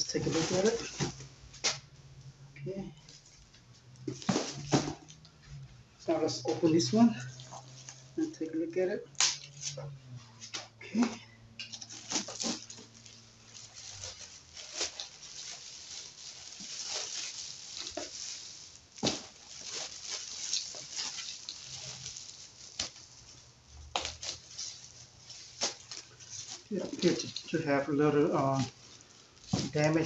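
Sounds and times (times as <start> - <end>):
plastic wrap crinkling: 0.0 - 2.0, 2.9 - 30.0
cardboard scraping: 0.1 - 1.2, 4.1 - 5.0.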